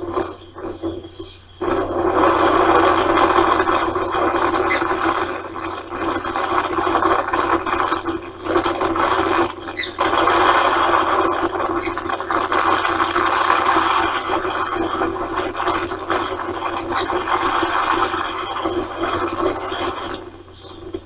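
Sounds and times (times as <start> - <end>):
wind on microphone: 0.0 - 21.0
faint bird chirps: 0.1 - 2.6, 3.4 - 6.5, 20.5 - 21.0.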